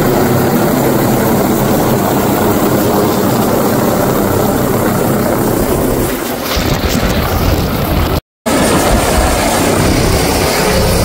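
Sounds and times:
helicopter passing overhead: 0:00.0 - 0:11.0.

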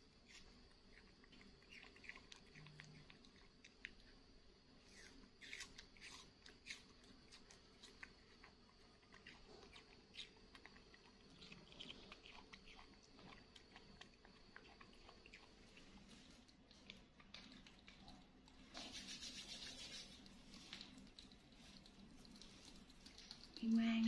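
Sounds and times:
monkey eating clicks and smacks: 0:00.2 - 0:23.9.

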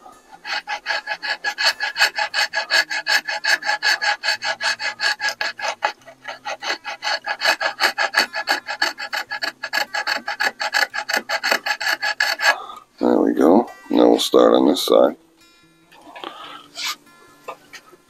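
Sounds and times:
wood rasp filing wood: 0:00.0 - 0:13.1, 0:16.6 - 0:17.0.

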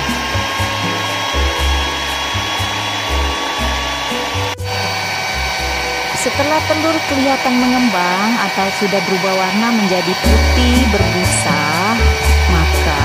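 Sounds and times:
stand mixer motor whine: 0:00.0 - 0:10.3.

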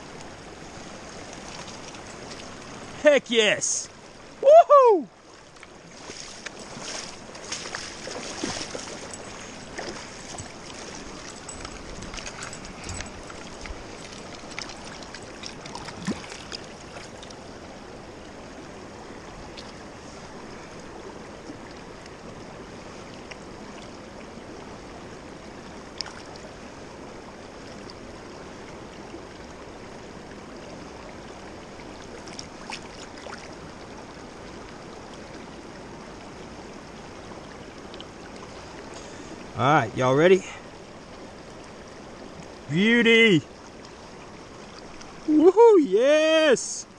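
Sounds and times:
river water running over rocks: 0:00.0 - 0:46.9
light splashing: 0:05.4 - 0:17.4.

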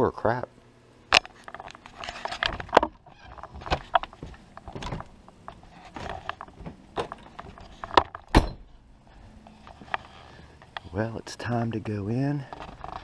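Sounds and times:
knocks and clatters of door and steps: 0:02.4 - 0:05.1, 0:05.9 - 0:08.7
door thudding shut: 0:08.3 - 0:08.7.

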